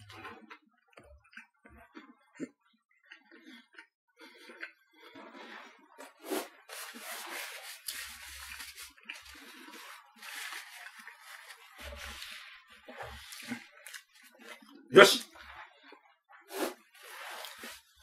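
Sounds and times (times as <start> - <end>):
tissue pulled from box: 6.3 - 9.0, 9.7 - 12.4, 16.5 - 18.0
tissue rustling and crumpling: 6.7 - 14.4, 16.5 - 18.0.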